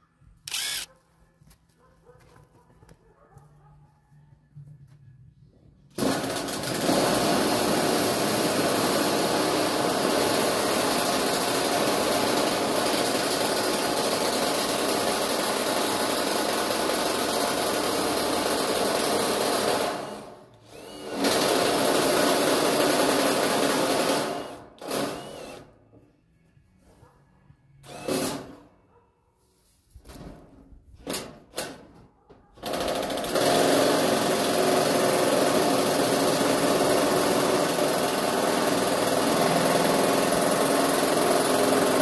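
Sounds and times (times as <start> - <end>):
power tool running: 0.4 - 0.9, 19.8 - 25.7, 32.7 - 42.0.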